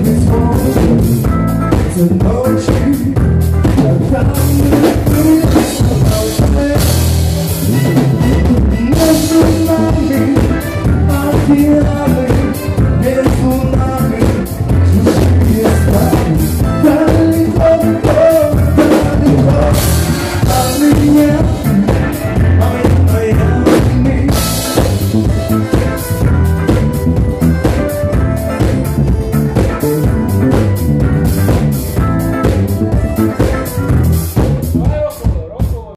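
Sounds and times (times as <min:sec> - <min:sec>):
electric bass guitar: 0:00.0 - 0:35.3
drum kit: 0:00.0 - 0:35.9.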